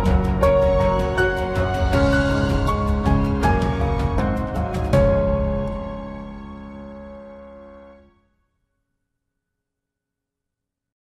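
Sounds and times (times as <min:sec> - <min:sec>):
background music chord: 0:00.0 - 0:08.2.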